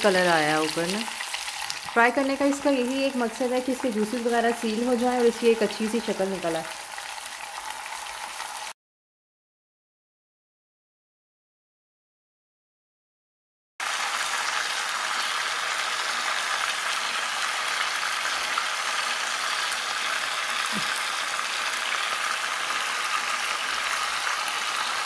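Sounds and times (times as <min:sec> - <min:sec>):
meat frying in hot oil: 0:00.0 - 0:08.8, 0:13.8 - 0:25.0.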